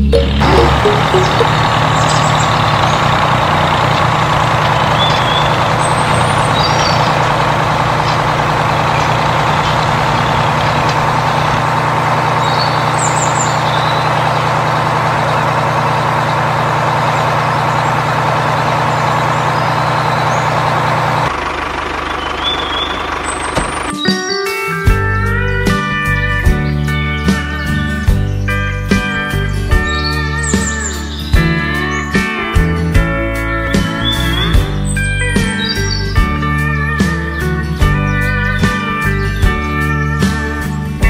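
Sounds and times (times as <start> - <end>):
short high chirps: 0.0 - 1.6
tractor engine running: 0.0 - 24.2, 29.0 - 41.0.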